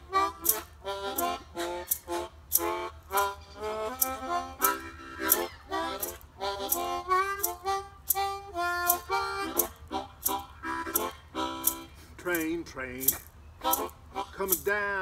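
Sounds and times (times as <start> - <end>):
harmonica playing blues: 0.0 - 15.0
steady beat of sharp ticks: 0.0 - 15.0.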